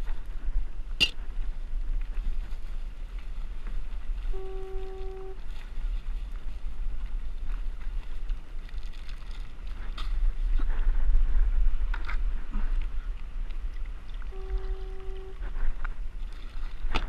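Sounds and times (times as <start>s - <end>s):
water lapping around kayak: 0.0s - 17.0s
wind buffeting microphone: 0.0s - 17.0s
short steady beep: 14.3s - 15.4s.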